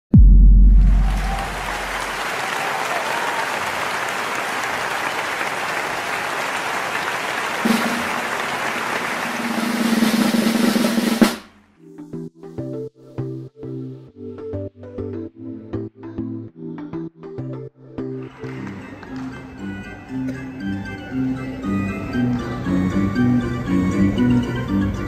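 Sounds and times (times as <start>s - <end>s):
deep boom: 0.1s - 2.2s
snare drum roll: 0.6s - 2.2s, 7.6s - 11.6s.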